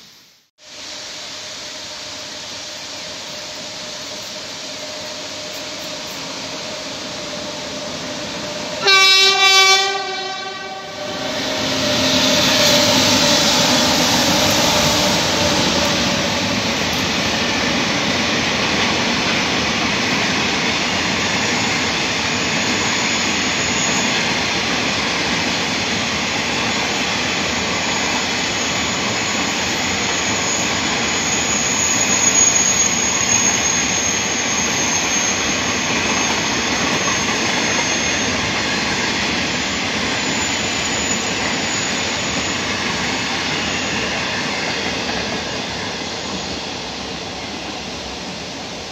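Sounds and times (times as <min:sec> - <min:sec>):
train wheels rolling on rails: 0:01.0 - 0:48.9
train horn blast: 0:08.5 - 0:16.6.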